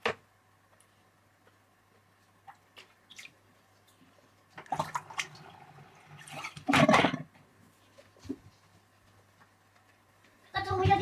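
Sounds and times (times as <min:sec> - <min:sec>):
water splashing into sink: 0:04.6 - 0:07.3.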